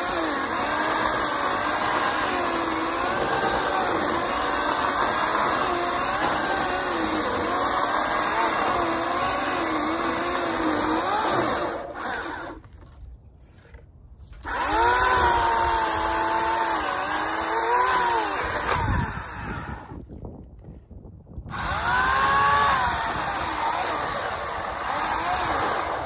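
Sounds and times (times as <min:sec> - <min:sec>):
electric chainsaw cutting wood: 0:00.0 - 0:12.9, 0:14.4 - 0:20.0, 0:21.5 - 0:26.0.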